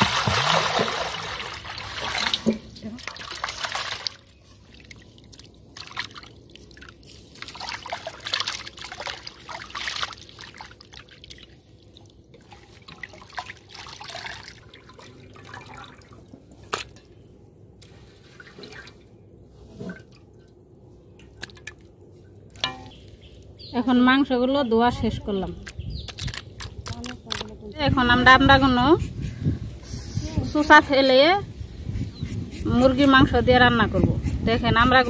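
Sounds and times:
water splashing in a metal basin: 0.0 - 17.1.

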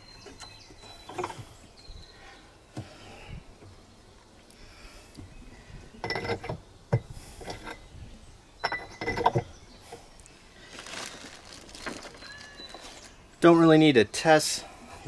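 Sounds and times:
metal tools clinking and rattling: 8.6 - 9.4.

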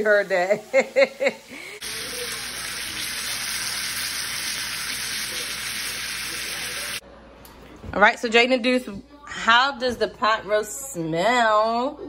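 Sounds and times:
meat sizzling in a pan: 0.0 - 7.0.

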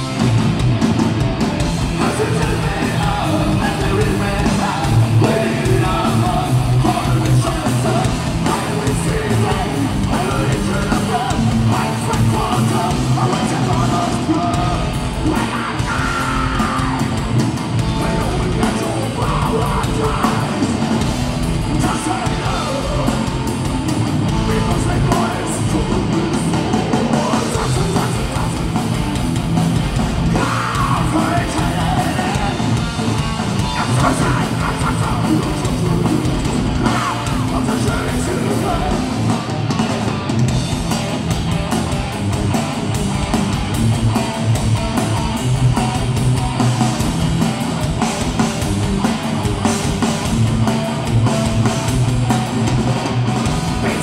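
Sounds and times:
distorted electric guitars: 0.0 - 54.0
drums: 0.0 - 54.0
man shouting vocals: 8.7 - 17.2, 30.3 - 32.7, 33.7 - 36.2, 53.8 - 54.0.

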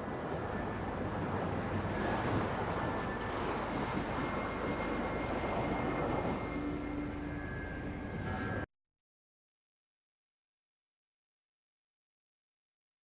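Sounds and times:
ocean surf breaking on beach: 0.0 - 6.4.

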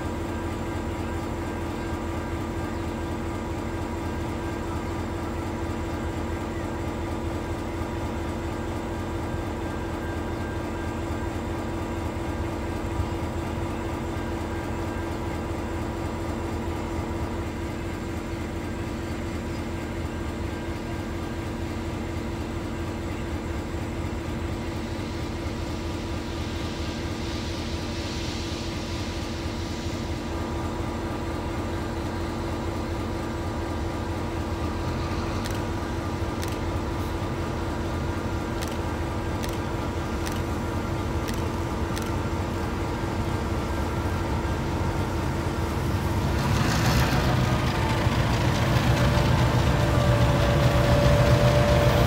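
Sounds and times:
vehicle engine rumble: 0.0 - 52.0
rush of hiss: 26.4 - 30.7.

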